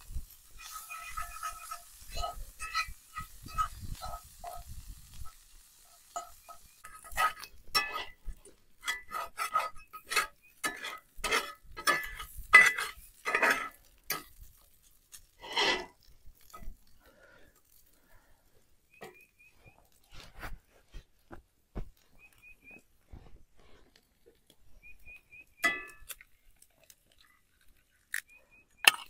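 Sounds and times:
metal spoon scraping a skillet: 0.0 - 17.0, 24.9 - 26.3, 28.8 - 29.0.

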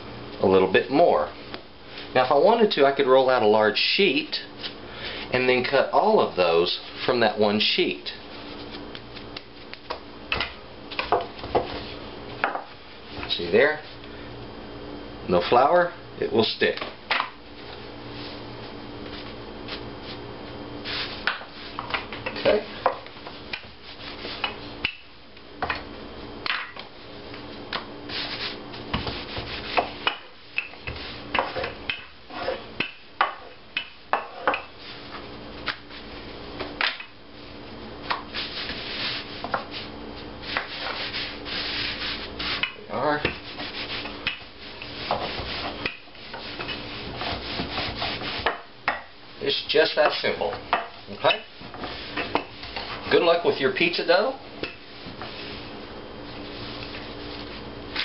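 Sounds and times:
rolling pin rolling dough: 20.8 - 25.0, 25.6 - 37.1, 38.0 - 58.0.

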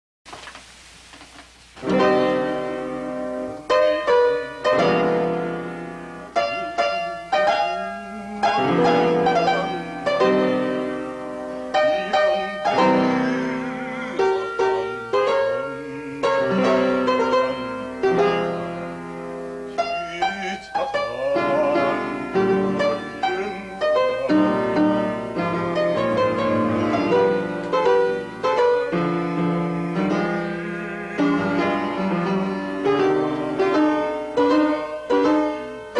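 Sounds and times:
faint hiss: 0.3 - 35.9
solo piano chords: 1.8 - 35.9.

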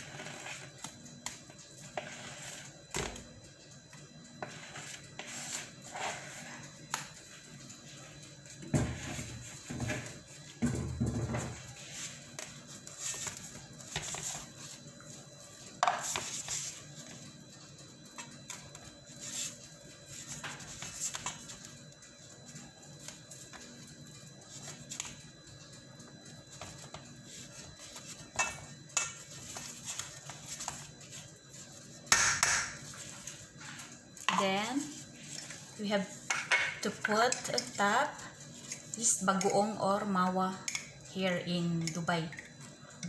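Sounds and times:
spatula scraping baking pan: 2.0 - 2.7, 4.4 - 6.6.

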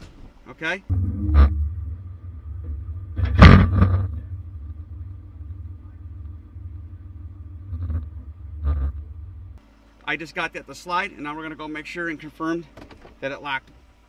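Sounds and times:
diesel engine rumbling: 0.0 - 13.2
loud metal clunk: 0.9 - 6.9.

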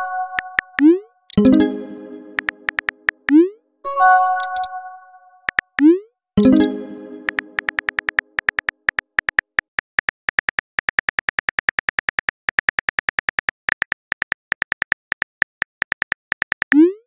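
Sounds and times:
phone keyboard clicks: 2.4 - 3.3, 4.4 - 4.7, 7.3 - 16.8.

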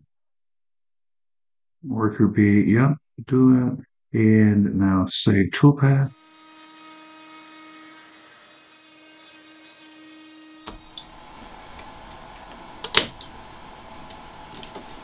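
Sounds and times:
router humming while cutting wood: 6.1 - 15.0.

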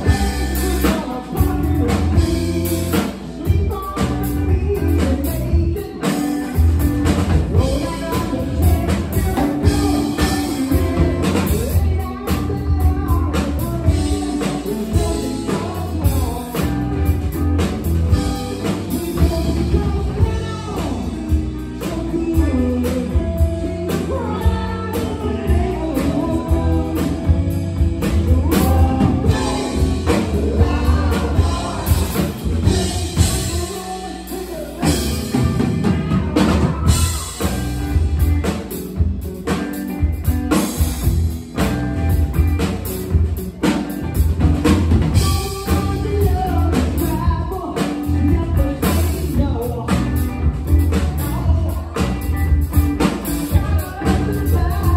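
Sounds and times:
drum kit: 0.0 - 54.9
electric bass: 0.0 - 54.9
electric guitar: 0.0 - 54.9
person singing: 0.0 - 54.9.

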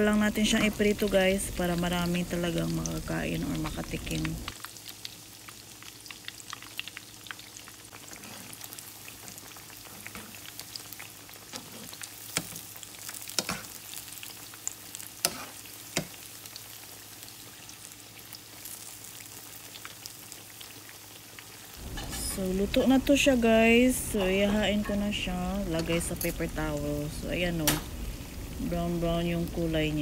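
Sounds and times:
food frying in oil: 0.0 - 30.0
sharp snaps of frying oil: 12.2 - 13.8, 15.2 - 16.3, 27.6 - 27.9.

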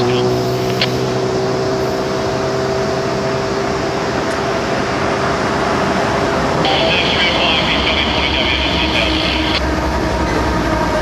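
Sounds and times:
diesel engine drone: 0.0 - 11.0
freight train approaching: 0.0 - 11.0.

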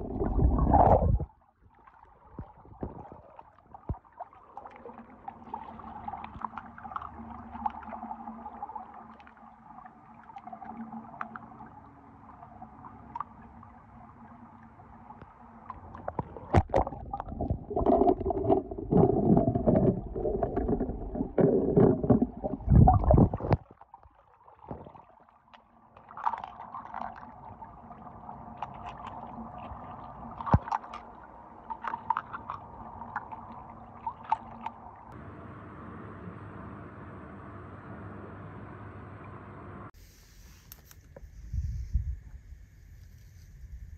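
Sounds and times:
water sloshing and gurgling: 0.0 - 35.2.

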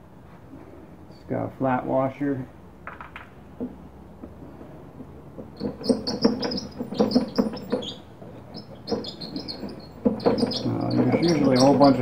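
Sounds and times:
screwdriver clicking and squeaking on metal: 5.4 - 12.0.

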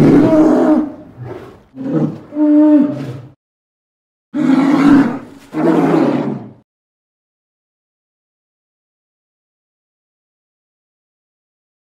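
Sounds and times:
bear roaring: 0.0 - 3.4, 4.4 - 6.6.

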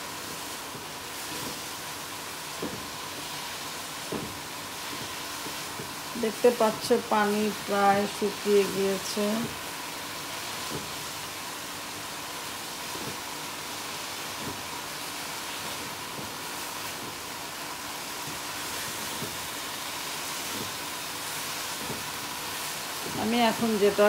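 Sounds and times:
vegetables sizzling in a pan: 0.0 - 24.0.

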